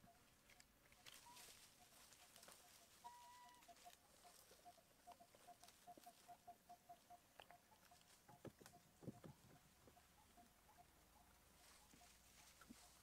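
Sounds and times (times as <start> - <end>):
dry leaves rustling: 0.5 - 6.3, 11.6 - 13.0.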